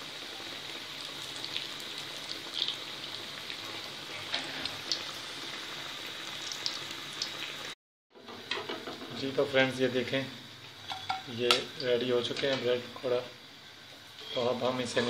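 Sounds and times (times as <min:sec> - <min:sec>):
food deep-frying in oil: 0:00.0 - 0:15.0.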